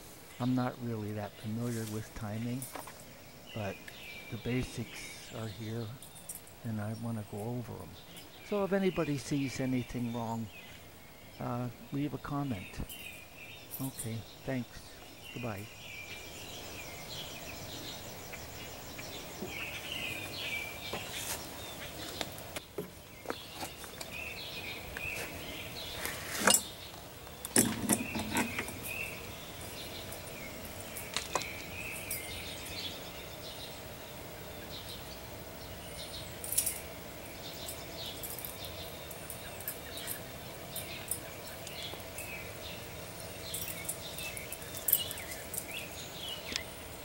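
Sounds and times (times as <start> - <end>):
birds chirping: 0.0 - 47.0
sharp clicks and knocks: 26.4 - 28.9.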